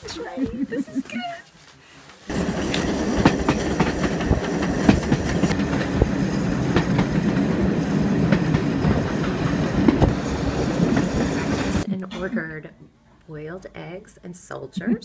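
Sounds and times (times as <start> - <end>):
wheels clicking and knocking: 2.3 - 11.8
train rumble inside carriage: 2.3 - 11.9.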